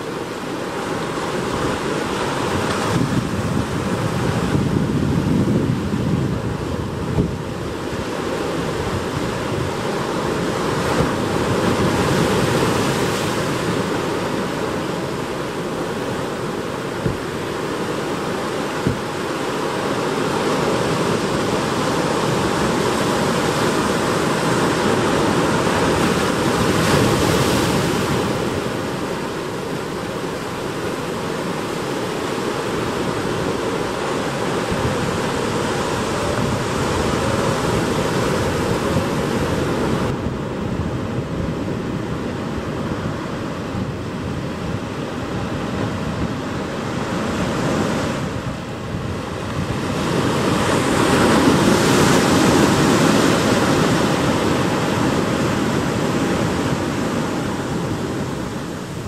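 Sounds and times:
surf breaking on rocks: 0.2s - 40.3s.

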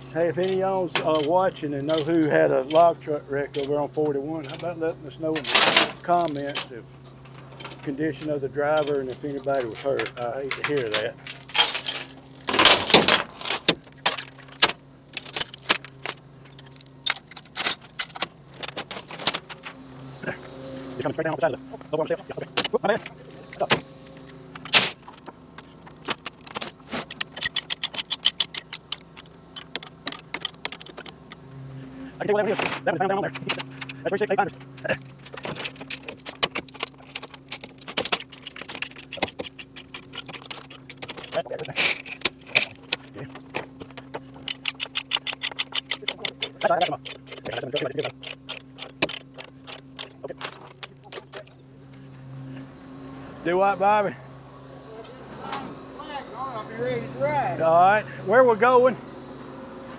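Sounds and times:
loose items rattling: 0.0s - 2.9s, 4.4s - 19.8s, 21.7s - 31.4s, 32.4s - 51.6s
metallic jangling and clicking: 0.0s - 3.8s, 4.4s - 21.0s, 21.6s - 31.4s, 32.4s - 51.6s
truck engine humming: 0.0s - 59.9s.

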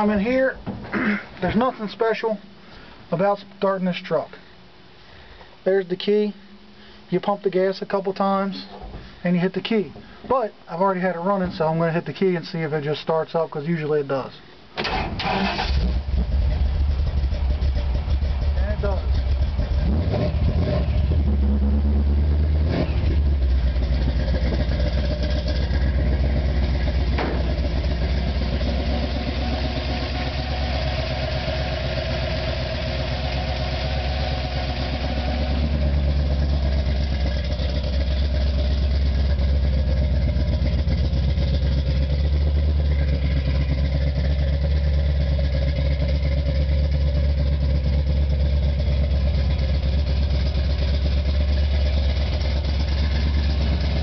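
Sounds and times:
engine idling: 14.8s - 54.0s.

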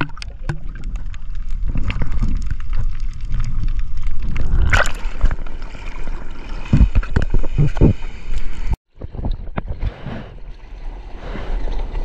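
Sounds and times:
water splash: 0.0s - 8.7s
underwater rumble of moving water: 0.0s - 12.0s.

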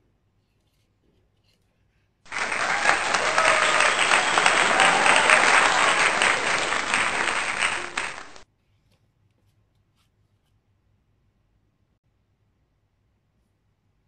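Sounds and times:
crowd clapping: 2.3s - 8.4s.

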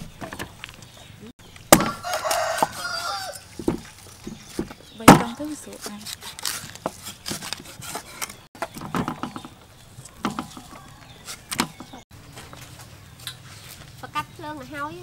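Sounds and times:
cleaver chopping on wooden board: 1.7s - 2.8s.

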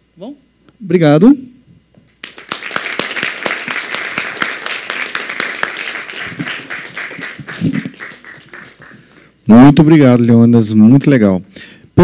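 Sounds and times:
audience applauding: 2.2s - 9.3s.

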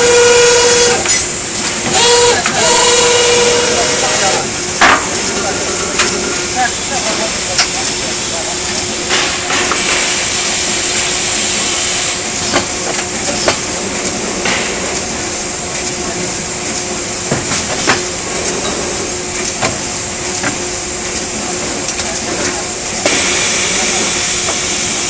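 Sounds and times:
pneumatic machine clanks: 0.0s - 2.7s, 4.6s - 25.0s
machine hum and hiss: 0.0s - 25.0s
high air hiss: 23.1s - 25.0s.

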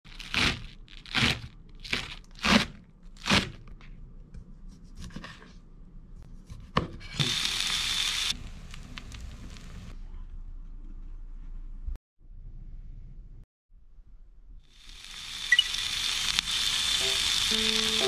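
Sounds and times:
hiss: 7.2s - 9.9s, 14.7s - 18.0s.

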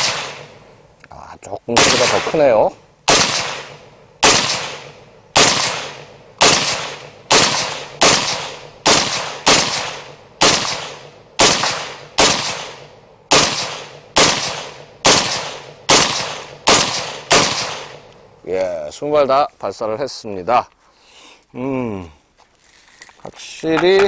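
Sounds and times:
suppressed rifle shots echoing: 0.0s - 0.8s, 1.8s - 18.1s.

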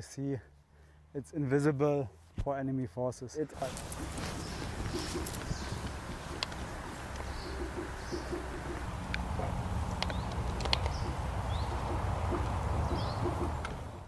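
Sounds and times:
bird cooing: 3.7s - 13.8s
high bird chirps: 4.0s - 8.9s, 10.0s - 13.6s
sharp ticks: 10.0s - 11.2s.

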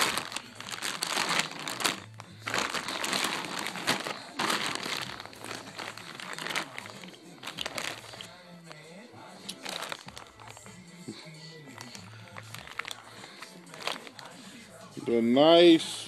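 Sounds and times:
plastic wrapping crinkling: 0.0s - 8.8s, 9.4s - 10.8s, 11.7s - 14.4s.

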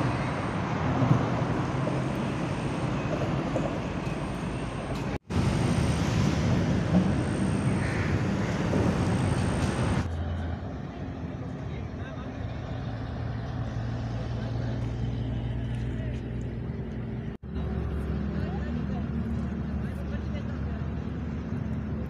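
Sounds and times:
traffic rumble on bridge overhead: 0.0s - 22.0s.

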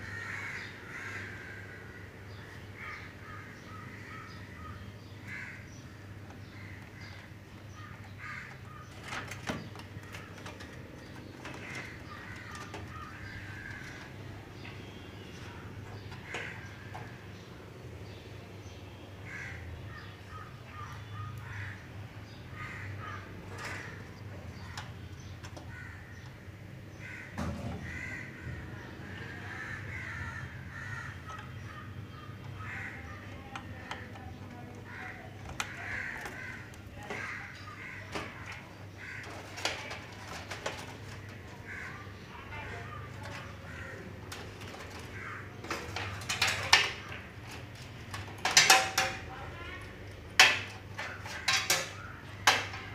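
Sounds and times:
birds calling: 0.0s - 52.9s
clicks of cables and sheet metal: 6.3s - 17.2s, 23.4s - 26.4s, 30.7s - 41.9s, 42.6s - 52.9s.

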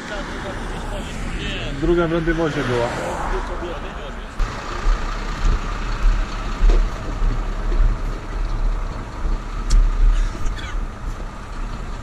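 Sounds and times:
truck engine idling: 4.0s - 12.0s.

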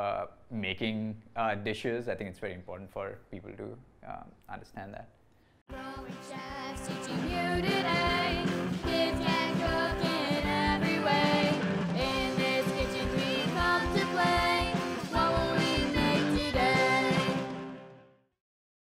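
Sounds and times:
person singing: 5.7s - 17.7s
steady drum beat: 6.0s - 17.6s.

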